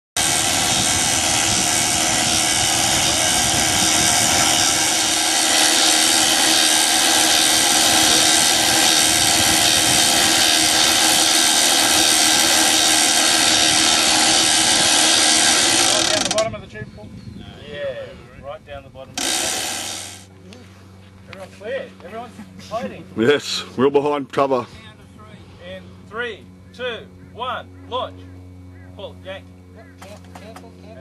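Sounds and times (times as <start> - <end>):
engine rushing whine: 0.2 - 16.5, 19.1 - 21.9.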